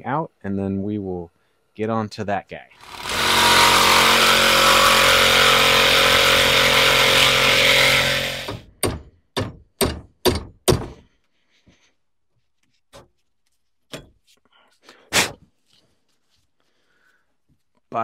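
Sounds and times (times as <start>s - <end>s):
reciprocating saw cutting: 2.8s - 8.7s
hammer strikes: 4.8s - 11.0s.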